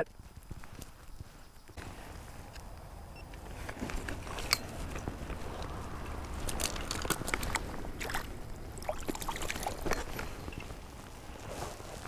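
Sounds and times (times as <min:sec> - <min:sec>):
water sloshing around boots: 0:03.7 - 0:12.0
stones clicking on streambed: 0:04.0 - 0:10.8.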